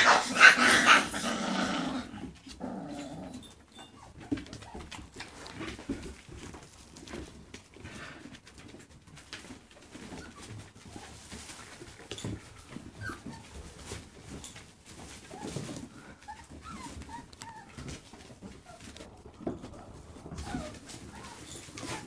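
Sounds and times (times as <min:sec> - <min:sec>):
puppies whimpering and squeaking: 0:02.9 - 0:06.4, 0:09.8 - 0:22.0.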